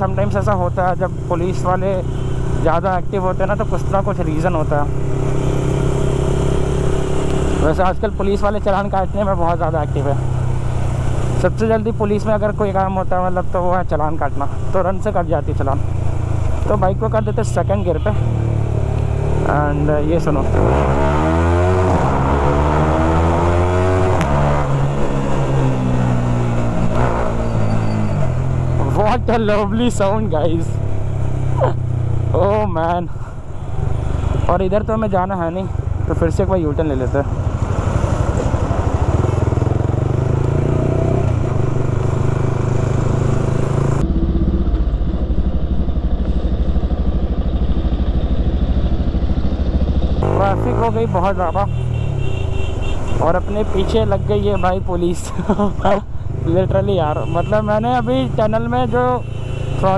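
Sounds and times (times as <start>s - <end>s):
motorcycle accelerating hard: 3.8s - 8.3s, 18.2s - 32.6s, 37.1s - 54.6s.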